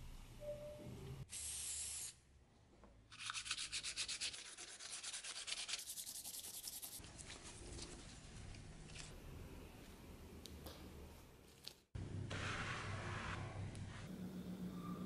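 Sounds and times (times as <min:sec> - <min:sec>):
sandpaper rubbing on metal: 0:03.2 - 0:07.0.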